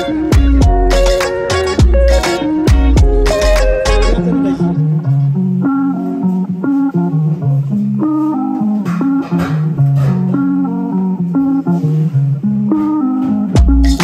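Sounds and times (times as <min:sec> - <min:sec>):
bass line: 0:00.0 - 0:14.0
plucked guitar melody: 0:00.0 - 0:14.0
deep drum beat: 0:00.3 - 0:01.2, 0:01.8 - 0:04.2, 0:13.6 - 0:14.0.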